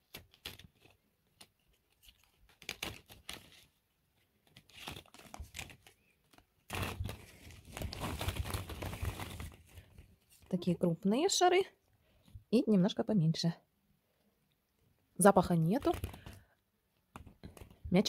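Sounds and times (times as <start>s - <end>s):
net rustling: 0.0s - 10.5s, 15.7s - 16.4s.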